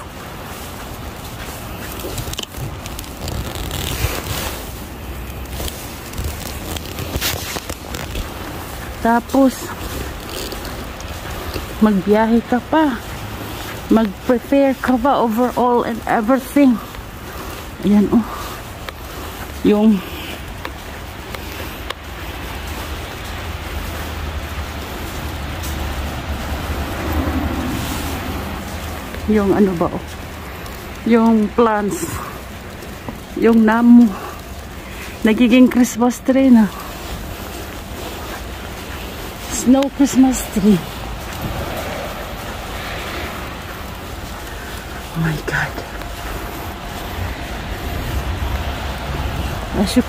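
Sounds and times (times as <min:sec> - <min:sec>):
wind noise on microphone: 0:00.0 - 0:12.2, 0:36.8 - 0:50.0
wet snow falling and pattering: 0:00.0 - 0:50.0
low rumble: 0:40.4 - 0:50.0.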